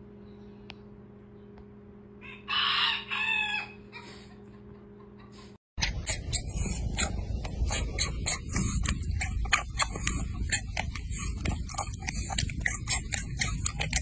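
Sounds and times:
steady low rumble: 0:05.8 - 0:14.0
cat licking and chewing: 0:06.1 - 0:14.0.

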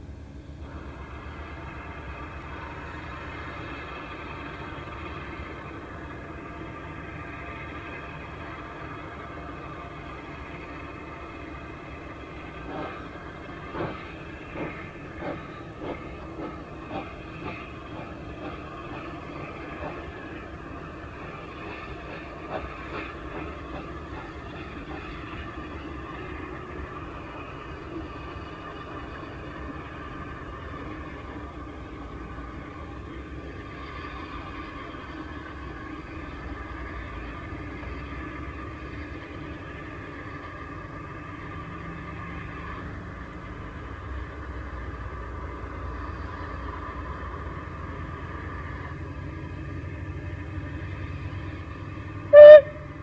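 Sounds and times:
steam locomotive rumbling on rails: 0:00.0 - 0:53.0
steam hissing: 0:09.6 - 0:31.0, 0:52.3 - 0:52.8.

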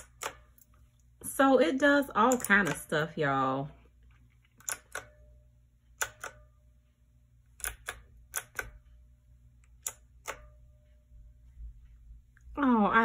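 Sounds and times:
mechanical keyboard key clicks: 0:04.6 - 0:05.2, 0:07.6 - 0:08.8.

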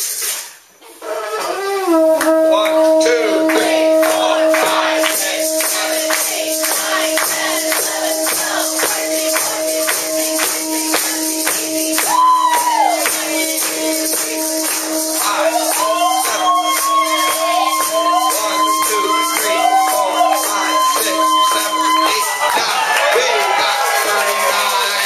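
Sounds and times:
conch shell long note: 0:01.3 - 0:24.4
crowd clapping a beat: 0:02.2 - 0:25.0
voices shouting: 0:15.3 - 0:25.0.

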